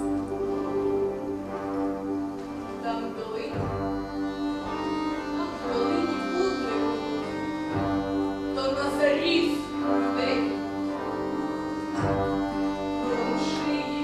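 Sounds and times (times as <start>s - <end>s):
bandura ensemble playing chords: 0.0s - 14.0s.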